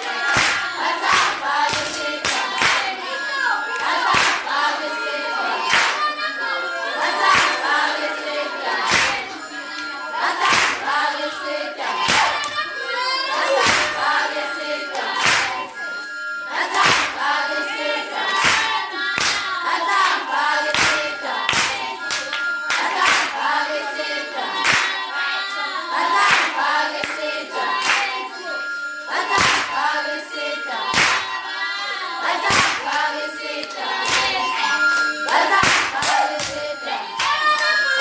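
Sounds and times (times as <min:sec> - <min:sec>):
handclapping: 0:00.0 - 0:03.1, 0:03.7 - 0:04.6, 0:05.7 - 0:06.2, 0:07.2 - 0:08.0, 0:08.6 - 0:11.0, 0:11.8 - 0:12.6, 0:13.3 - 0:14.2, 0:14.9 - 0:15.7, 0:16.7 - 0:17.2, 0:18.3 - 0:23.6, 0:24.6 - 0:25.0, 0:26.2 - 0:27.2, 0:27.8 - 0:28.2, 0:29.3 - 0:29.7, 0:30.9 - 0:31.3, 0:32.4 - 0:38.0
group of voices singing: 0:00.0 - 0:38.0.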